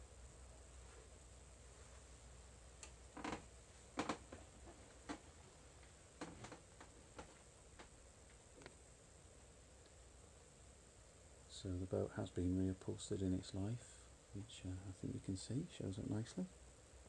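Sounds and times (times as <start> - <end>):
faint low hum: 0.0 - 17.0
soft footsteps: 2.9 - 8.0.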